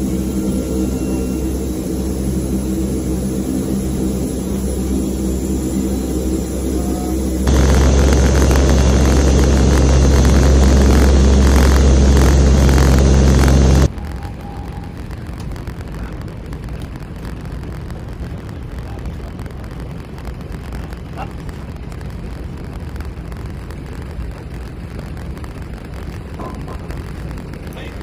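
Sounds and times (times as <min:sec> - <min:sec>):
aircraft cabin engine drone: 0:00.0 - 0:28.0
outdoor background noise: 0:00.0 - 0:28.0.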